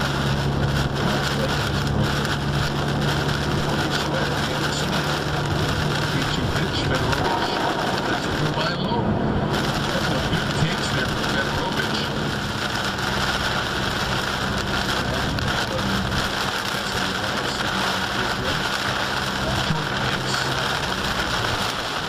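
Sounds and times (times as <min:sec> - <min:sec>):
heavy rain on car windshield: 0:00.0 - 0:22.0
low car hum: 0:00.0 - 0:22.0.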